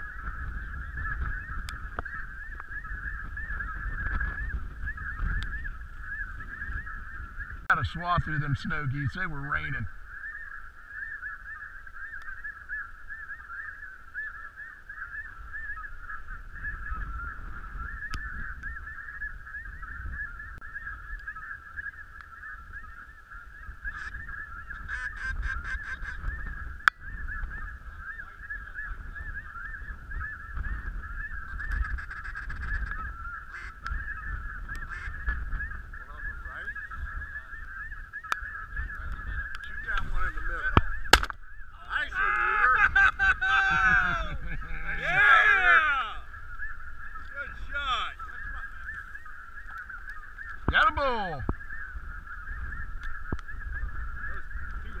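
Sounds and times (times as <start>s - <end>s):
geese calling: 0.0s - 55.0s
sharp click: 41.1s - 41.4s.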